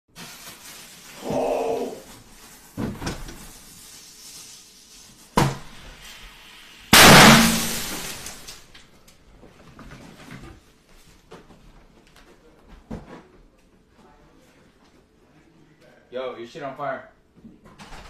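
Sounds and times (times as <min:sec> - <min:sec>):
fireworks banging: 0:07.0 - 0:08.5.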